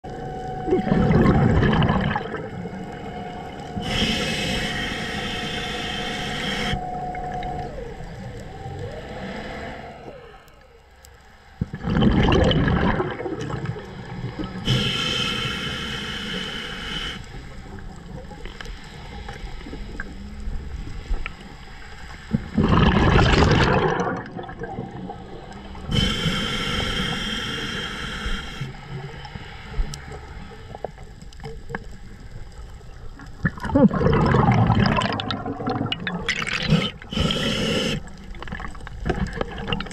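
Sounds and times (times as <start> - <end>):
exhaled bubbles gushing: 0.6 - 3.0, 11.6 - 14.7, 22.3 - 26.0, 32.4 - 39.9
regulator hissing inhalation: 3.8 - 6.9, 14.6 - 17.4, 25.8 - 28.8, 36.6 - 38.2.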